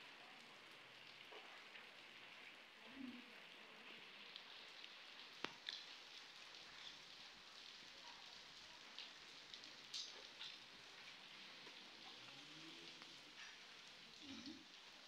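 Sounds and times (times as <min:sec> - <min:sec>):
rain falling on puddles: 0:00.0 - 0:15.0
sharp drips: 0:04.3 - 0:15.0.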